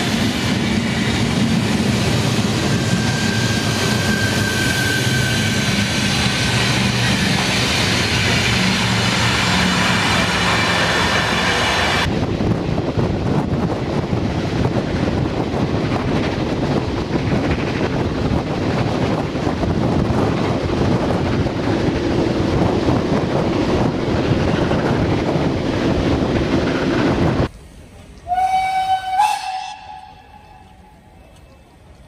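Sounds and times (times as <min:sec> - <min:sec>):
wind rushing over microphone: 0:00.0 - 0:27.5
train rumble: 0:00.0 - 0:32.0.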